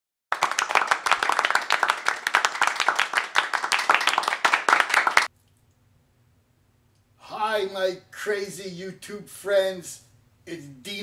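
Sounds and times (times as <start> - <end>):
hands clapping: 0.3 - 5.3.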